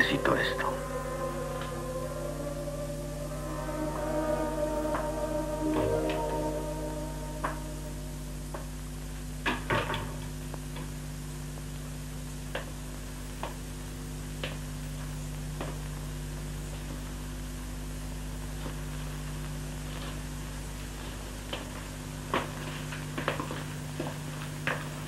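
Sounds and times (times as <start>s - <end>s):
steady soundtrack hum: 0.0s - 9.4s.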